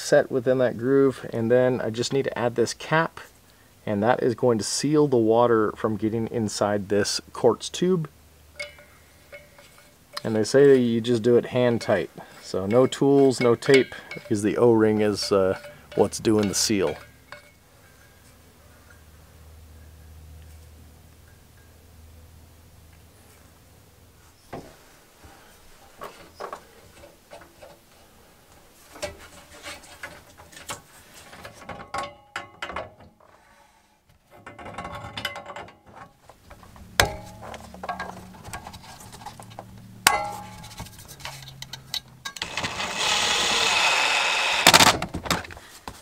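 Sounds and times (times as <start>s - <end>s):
clicks and knocks on plumbing fittings: 30.0s - 33.2s
cordless drill driving a screw: 42.4s - 45.0s.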